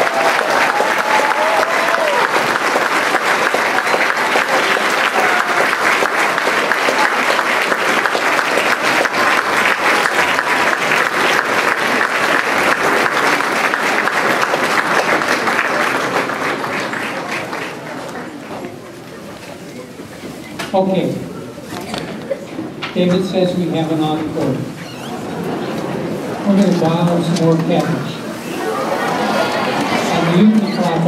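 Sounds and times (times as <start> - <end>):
audience applauding: 0.0 - 18.6, 28.4 - 31.0.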